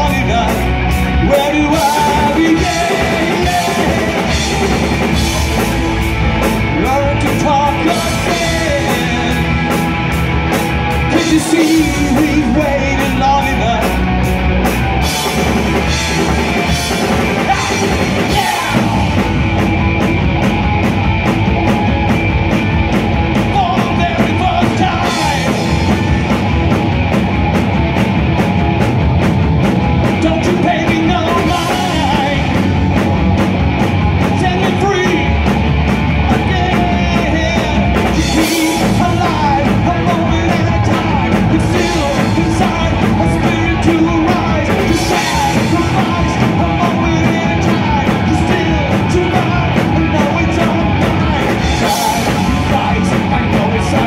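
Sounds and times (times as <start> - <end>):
man singing: 0.0 - 5.7, 6.5 - 10.0, 11.0 - 14.1, 15.0 - 19.4, 23.4 - 26.1, 30.1 - 32.8, 34.2 - 35.5, 36.2 - 54.0
live rock band playing: 0.0 - 54.0.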